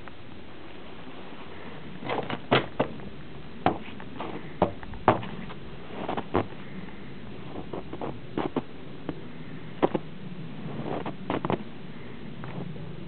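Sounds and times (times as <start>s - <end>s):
footsteps crunching in snow: 0.6s - 11.7s.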